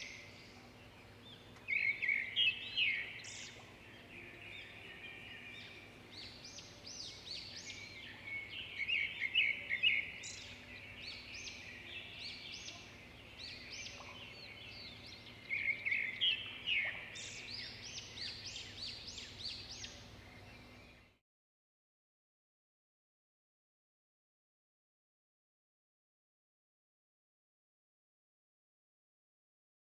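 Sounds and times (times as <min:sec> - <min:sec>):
faint steady hum: 0:00.0 - 0:21.2
small birds chirping: 0:00.0 - 0:21.2.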